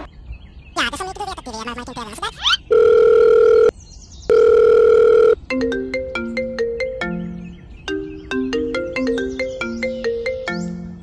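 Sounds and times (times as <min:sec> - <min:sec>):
electronic phone tones: 0:02.7 - 0:03.7, 0:04.3 - 0:05.4
ringtone melody: 0:04.3 - 0:11.0.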